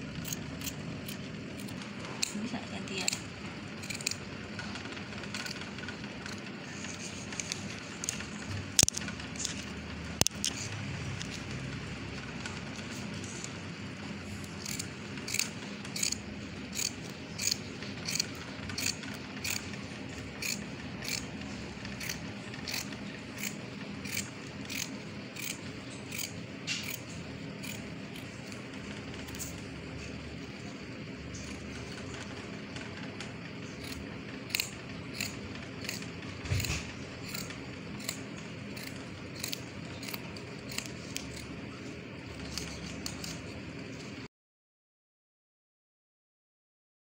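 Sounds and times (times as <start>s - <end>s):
shears snipping cloth: 0.2s - 4.2s, 14.3s - 29.6s, 33.6s - 43.6s.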